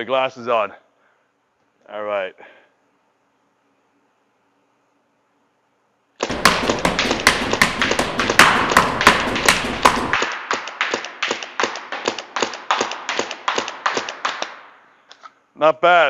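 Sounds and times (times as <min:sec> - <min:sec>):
paintball marker firing: 0:06.2 - 0:14.8.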